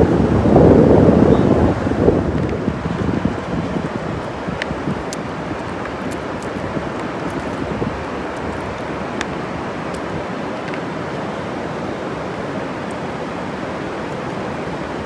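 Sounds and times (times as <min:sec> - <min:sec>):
river water rushing: 0:00.0 - 0:15.0.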